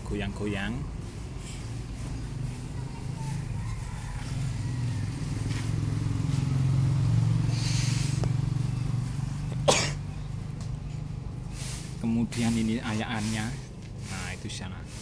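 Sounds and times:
small petrol engine running: 0.8s - 15.0s.

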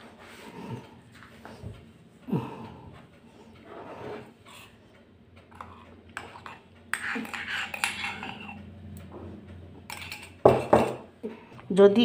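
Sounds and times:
spoon scraping a steel bowl: 3.6s - 4.8s, 5.5s - 8.7s, 9.9s - 10.7s
spoon clinking against a mug: 5.5s - 8.6s, 9.9s - 11.0s.

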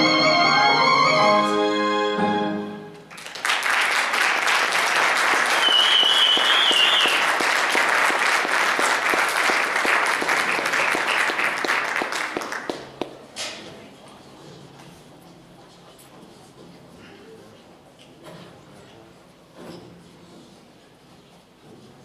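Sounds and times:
orchestral string music: 0.0s - 3.0s
audience applause: 3.1s - 13.1s
short wavering whistle: 5.5s - 7.2s.

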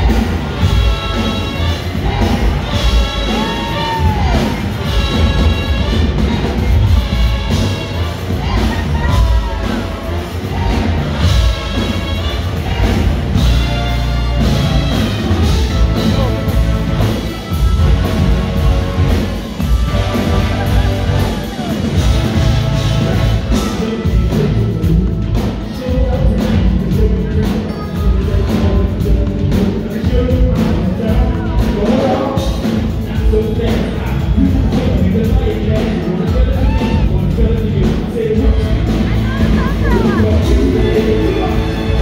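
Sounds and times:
low brass: 0.0s - 25.3s, 37.0s - 42.0s
trombones and trumpets playing: 0.0s - 26.5s, 37.1s - 42.0s
pounding marching bass drum: 0.0s - 42.0s.

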